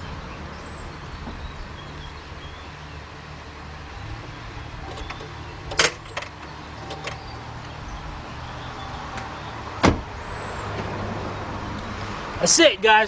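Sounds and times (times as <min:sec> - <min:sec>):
car door shutting: 0:04.8 - 0:07.8, 0:08.9 - 0:11.0.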